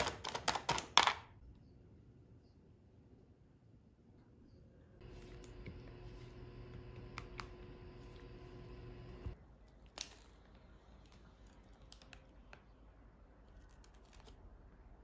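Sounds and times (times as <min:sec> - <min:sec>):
low steady hum: 0:01.5 - 0:09.7.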